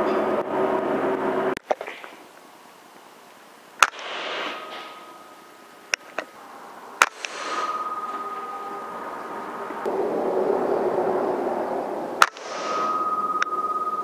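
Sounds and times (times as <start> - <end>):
air rifle shots: 3.8 - 6.4, 7.0 - 8.4, 12.2 - 13.1.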